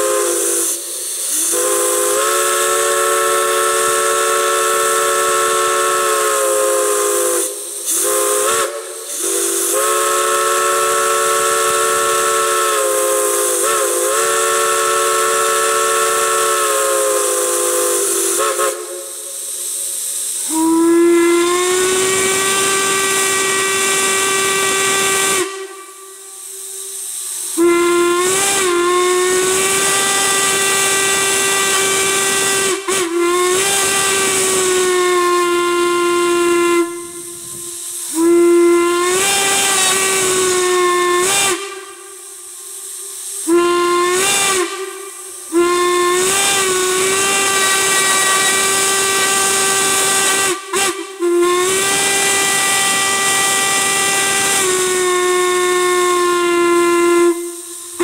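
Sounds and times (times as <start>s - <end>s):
steam hiss: 0.0s - 58.0s
steam whistle blasts: 0.0s - 58.0s.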